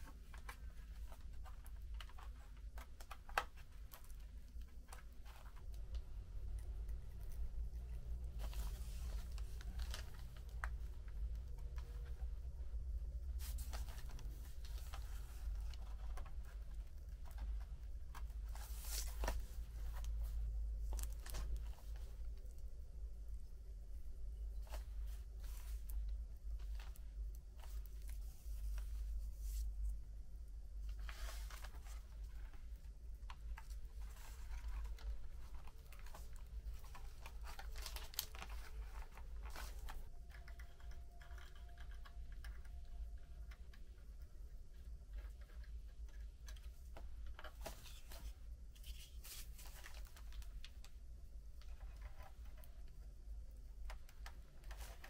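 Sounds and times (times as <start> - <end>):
plastic parts clicking and scraping: 0.0 - 12.6, 13.3 - 22.5, 30.8 - 51.0, 51.6 - 55.0
steady low hum: 0.0 - 55.0
plastic parts clicking and tapping: 33.2 - 48.9.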